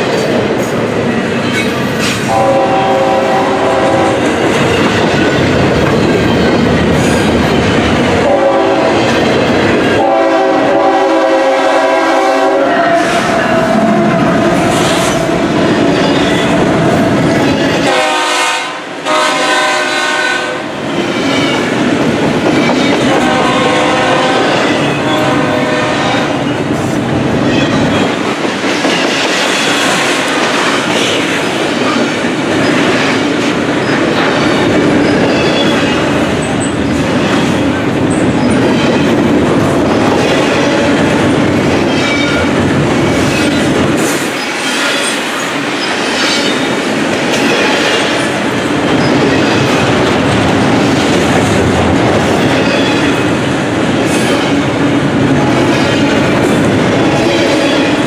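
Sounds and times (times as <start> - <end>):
freight train rumble and rattle: 0.0 - 58.0
locomotive horn chord: 2.3 - 4.2, 8.2 - 9.0, 10.0 - 14.2, 17.8 - 20.6, 23.1 - 26.4.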